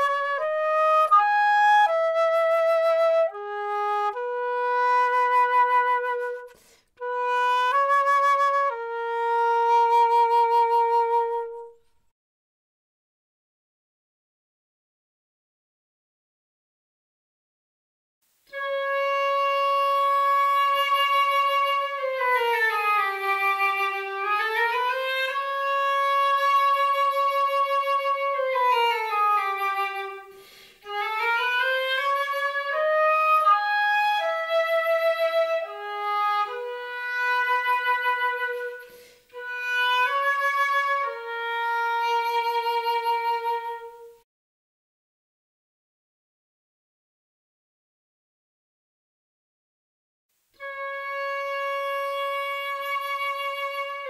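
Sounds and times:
solo flute melody: 0.0s - 11.9s, 18.4s - 44.2s, 50.6s - 54.0s.

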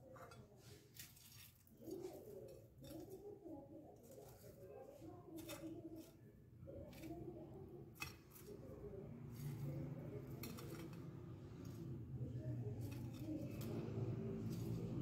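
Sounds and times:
bread rolls clinking on glass dish: 7.9s - 11.9s.

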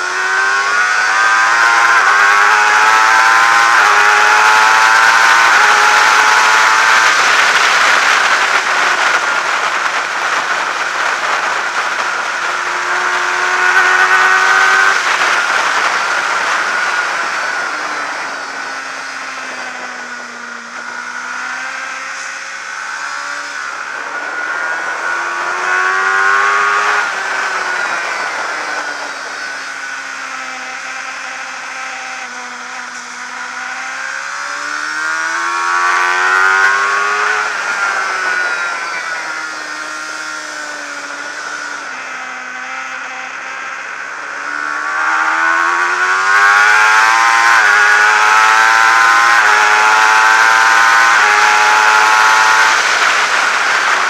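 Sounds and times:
motorcycle engine revving: 0.0s - 54.0s
wind rush: 4.1s - 31.1s, 50.8s - 54.0s.

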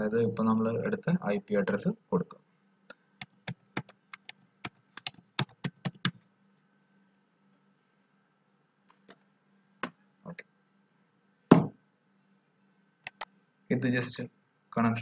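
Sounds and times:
keyboard typing: 3.2s - 6.2s.

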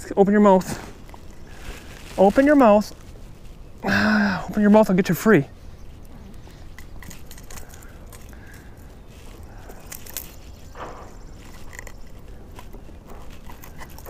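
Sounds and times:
metal pliers and hooks rattling: 6.5s - 14.0s.

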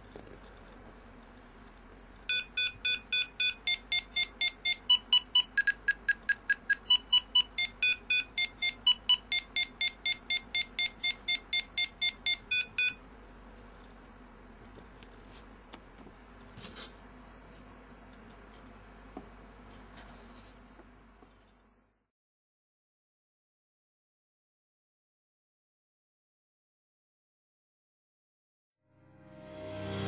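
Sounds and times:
buzzer beeping: 2.3s - 13.0s.

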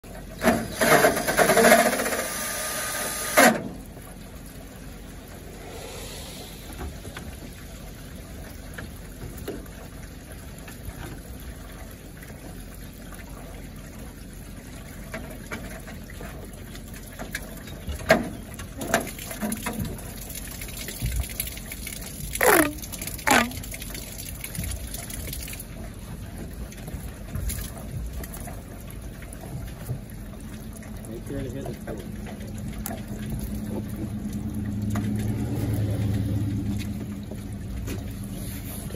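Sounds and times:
faint hiss: 5.4s - 7.4s
short squeaks: 22.4s - 23.6s.

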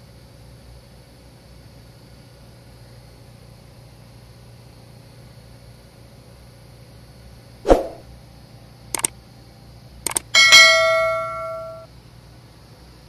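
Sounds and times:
short whoosh: 7.7s - 8.0s
quick double clicks: 10.1s - 10.3s
notification bell ringing: 10.4s - 11.8s.

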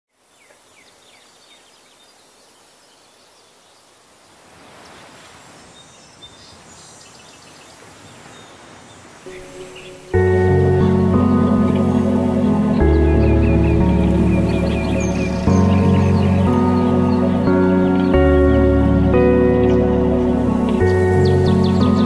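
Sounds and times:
birds chirping: 0.2s - 22.0s
music: 9.3s - 22.0s.

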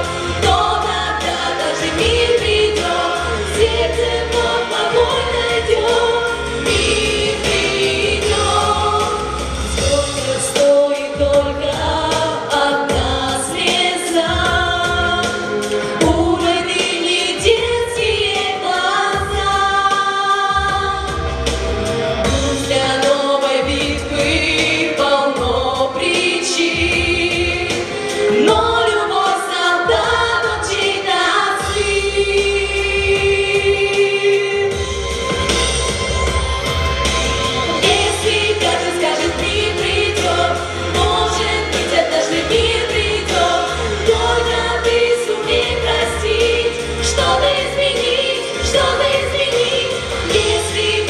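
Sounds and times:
female vocal group singing: 0.0s - 21.5s, 22.2s - 34.9s, 37.6s - 51.0s
pulsing bass accompaniment: 0.0s - 51.0s.

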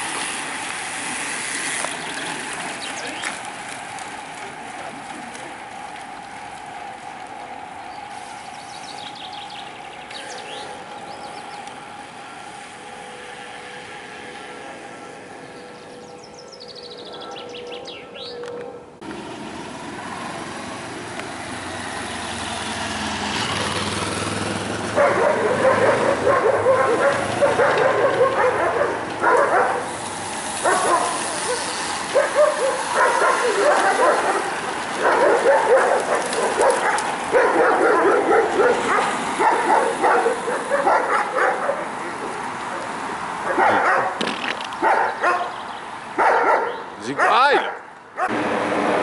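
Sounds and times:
racing bicycles whirring: 0.0s - 16.8s, 19.0s - 47.5s
car passing: 0.0s - 49.0s
dog barking loudly: 24.9s - 29.9s, 30.6s - 42.0s, 43.4s - 44.2s, 44.8s - 45.6s, 46.2s - 48.4s.

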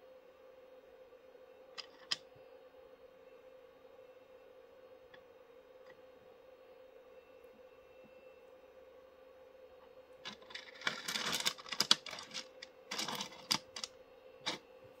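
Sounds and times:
stones clicking together: 10.3s - 13.9s.

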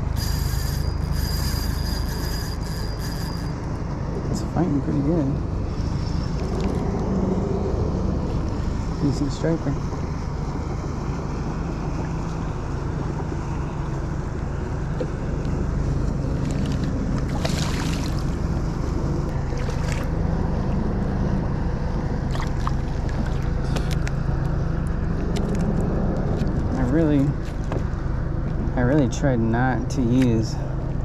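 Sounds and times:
steady low hum: 0.0s - 31.0s
water lapping around kayak: 15.7s - 21.0s, 22.0s - 24.2s, 27.4s - 28.6s
water splash: 16.4s - 18.4s, 19.4s - 20.2s, 22.3s - 23.6s.

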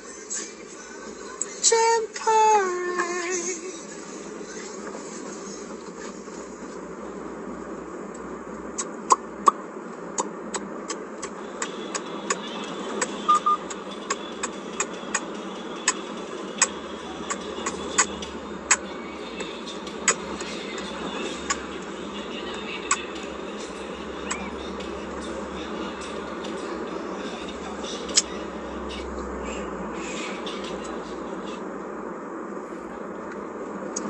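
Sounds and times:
car cabin road and engine noise: 0.0s - 34.0s
double beep: 13.3s - 13.6s.

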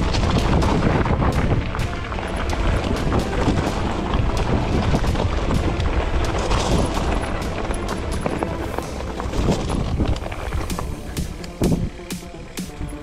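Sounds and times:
bike rattling and knocking: 0.0s - 13.0s
wind buffeting microphone: 0.0s - 13.0s.

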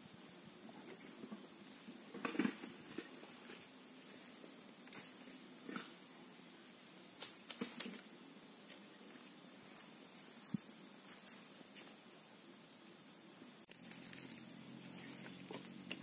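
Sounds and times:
high-pitched insect buzz: 0.0s - 16.0s
dry twigs crackling: 13.7s - 16.0s.

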